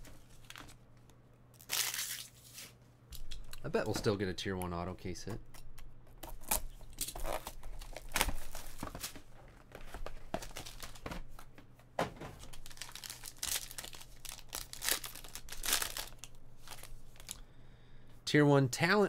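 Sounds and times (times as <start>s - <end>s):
foil and plastic wrapping crinkling: 6.4s - 11.2s, 12.4s - 17.4s.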